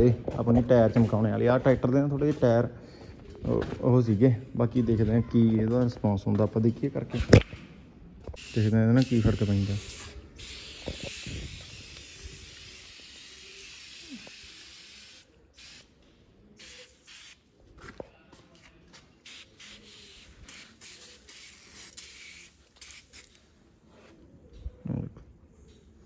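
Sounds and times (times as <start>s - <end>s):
aerosol spray hissing: 8.4s - 15.9s, 16.6s - 17.4s, 19.2s - 23.4s.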